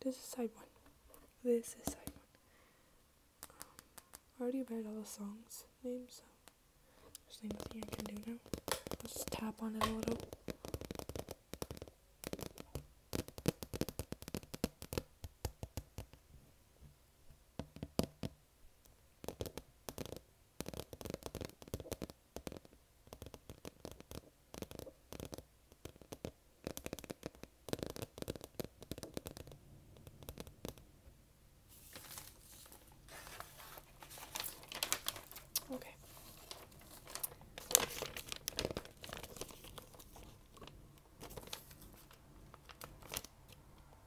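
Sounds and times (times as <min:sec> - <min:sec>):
record rustling hiss: 0:00.0 - 0:44.0
fingernails tapping on record: 0:07.5 - 0:16.2, 0:17.6 - 0:18.4, 0:19.2 - 0:30.9.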